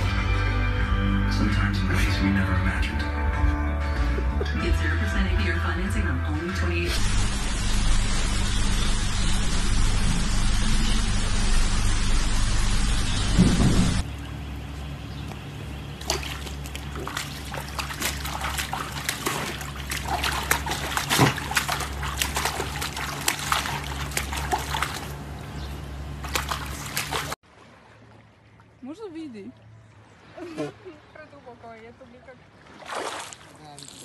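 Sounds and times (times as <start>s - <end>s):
loud steady hiss: 7.0s - 14.0s
pool water splashing: 13.0s - 34.0s.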